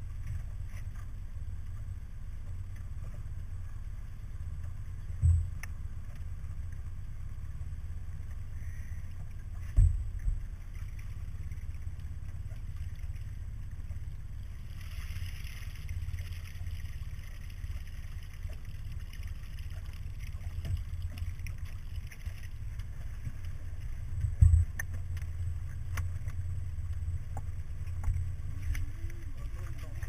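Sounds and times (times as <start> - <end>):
wind and water rumble: 0.0 - 30.0
sharp thump: 9.8 - 10.1.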